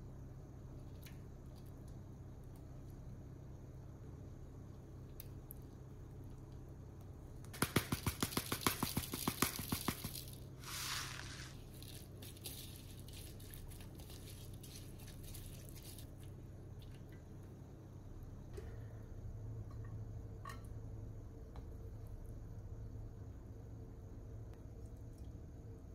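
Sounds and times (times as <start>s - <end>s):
short hiss: 10.6s - 11.6s.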